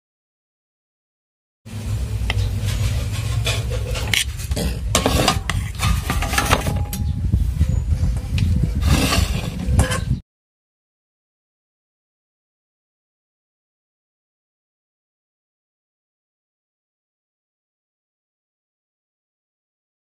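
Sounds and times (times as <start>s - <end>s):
steady low rumble: 1.7s - 10.2s.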